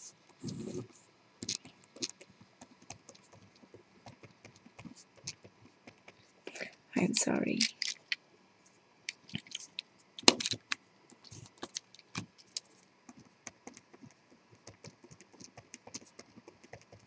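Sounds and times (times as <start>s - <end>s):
pen scratching on paper: 0.5s - 6.3s, 11.3s - 17.0s.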